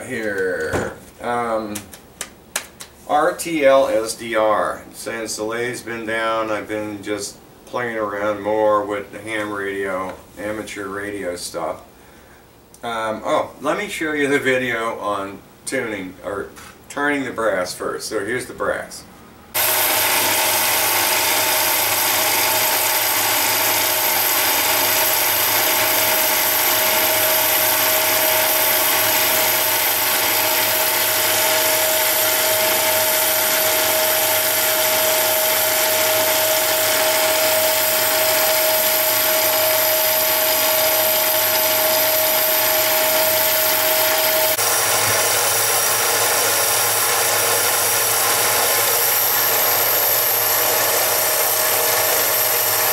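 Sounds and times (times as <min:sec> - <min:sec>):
lathe machining noise: 0:19.6 - 0:52.9
lathe motor and gear whine: 0:19.6 - 0:52.9.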